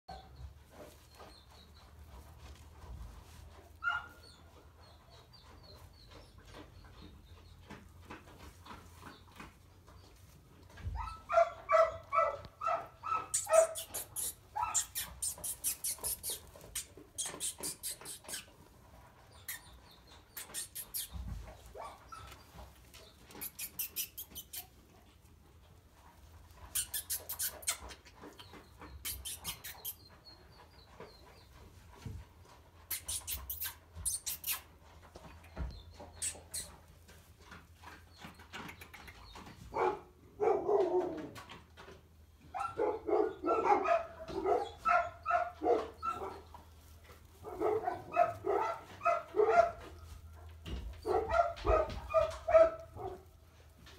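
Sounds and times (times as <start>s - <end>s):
puppies scuffling in straw: 0.1s - 6.4s, 7.8s - 27.7s, 42.5s - 53.9s
puppies whimpering and squealing: 10.8s - 18.6s, 19.3s - 22.6s, 23.3s - 24.8s, 26.6s - 31.5s, 32.8s - 34.8s, 36.0s - 36.9s.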